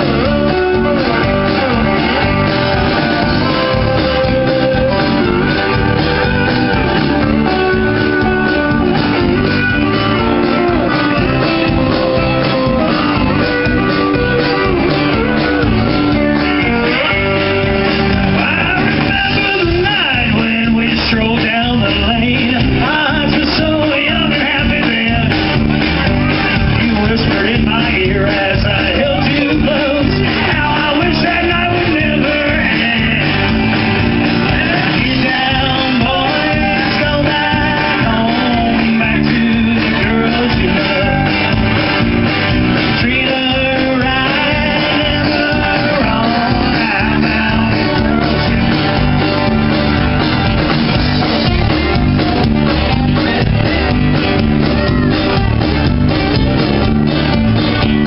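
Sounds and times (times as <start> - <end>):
lead vocal singing: 0.0 - 8.8, 14.6 - 25.7, 26.5 - 49.5
live band playing: 0.0 - 58.0.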